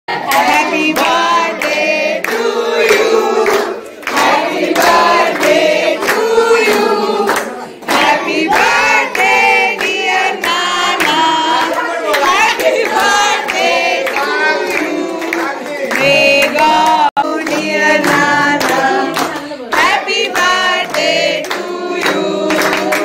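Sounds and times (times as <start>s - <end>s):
children singing in chorus: 0.2s - 15.2s
hands clapping in time: 0.3s - 23.0s.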